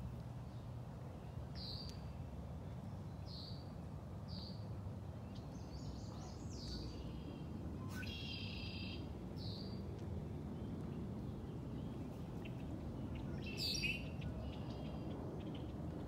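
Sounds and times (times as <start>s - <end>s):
steady low rumble: 0.0s - 16.0s
birds chirping: 10.6s - 15.8s.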